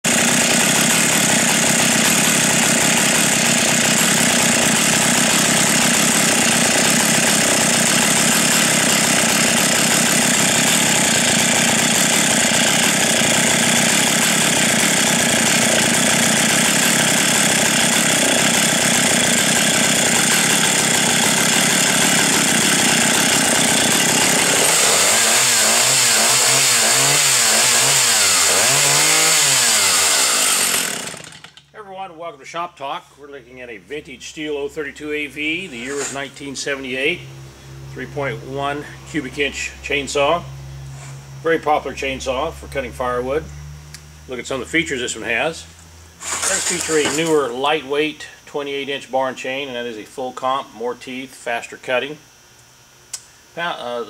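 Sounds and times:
two-stroke chainsaw engine running: 0:00.1 - 0:31.6, 0:46.2 - 0:47.8.

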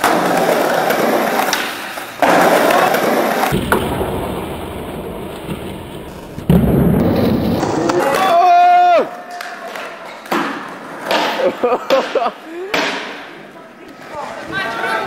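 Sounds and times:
skateboard clacks and thuds: 0:00.0 - 0:08.2
skateboard wheels rolling on paving: 0:00.0 - 0:09.0.

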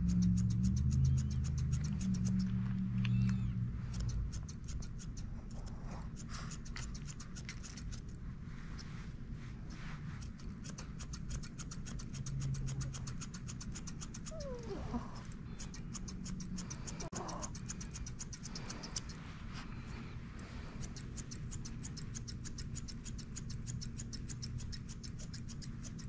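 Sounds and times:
shears snipping hair: 0:00.0 - 0:26.0
puppy whining: 0:00.8 - 0:03.7, 0:14.1 - 0:15.8, 0:16.6 - 0:17.8.

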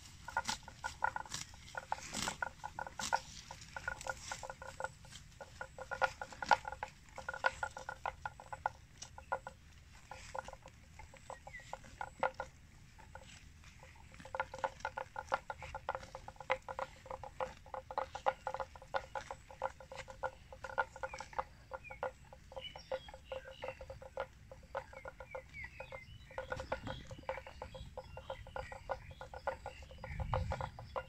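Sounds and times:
buffalo tearing and chewing grass: 0:00.0 - 0:31.0.

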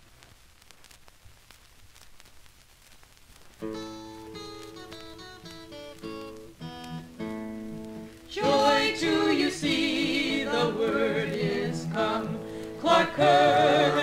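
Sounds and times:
acoustic guitar picking: 0:03.6 - 0:14.0
group of voices singing: 0:08.3 - 0:14.0.

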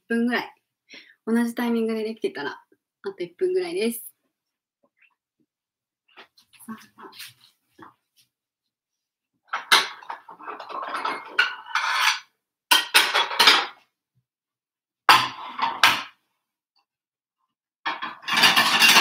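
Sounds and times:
plates clattering: 0:09.5 - 0:13.8, 0:15.1 - 0:16.2, 0:17.9 - 0:19.0.

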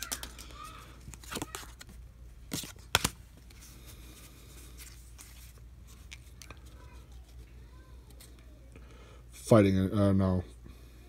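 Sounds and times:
trading cards snapping and rustling: 0:00.0 - 0:03.6.

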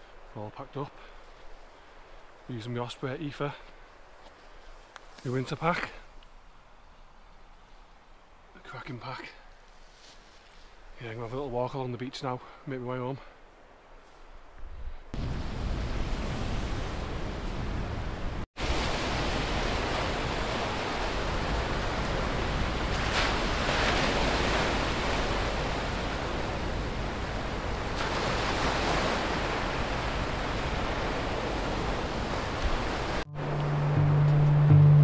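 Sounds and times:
sea surf washing onto beach: 0:15.2 - 0:34.4.

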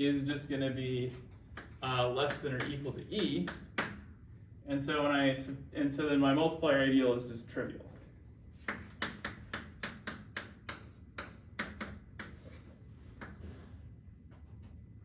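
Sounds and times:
chalk tapping and scratching: 0:01.2 - 0:04.0, 0:08.5 - 0:14.9.

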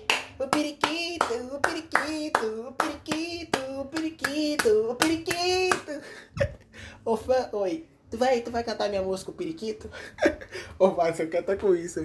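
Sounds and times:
hand clapping: 0:00.0 - 0:06.0.

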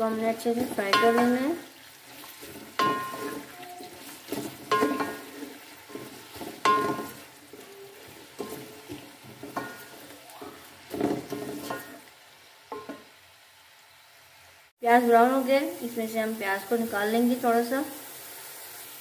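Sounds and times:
onions sizzling in hot oil: 0:00.0 - 0:19.0
spatula scraping and knocking pot: 0:00.5 - 0:12.0.

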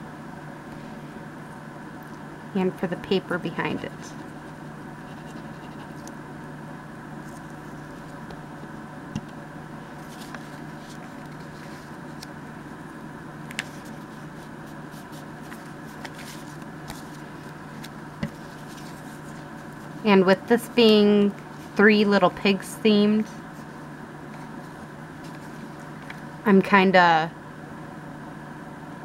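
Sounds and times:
steady background hum: 0:00.0 - 0:29.0
paper rustling and tapping: 0:17.8 - 0:19.3.

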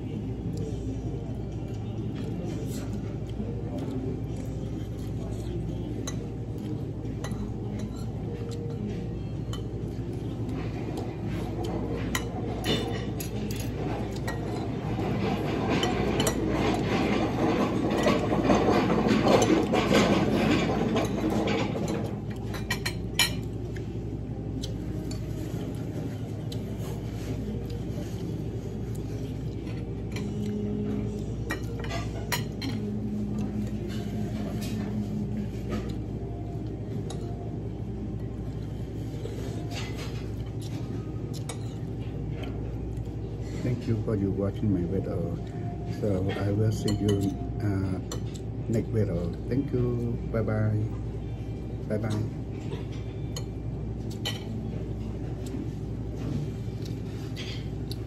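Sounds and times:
steady background hum: 0:00.0 - 0:58.0
cutlery clinking on plates: 0:11.9 - 0:23.6, 0:52.0 - 0:55.0.

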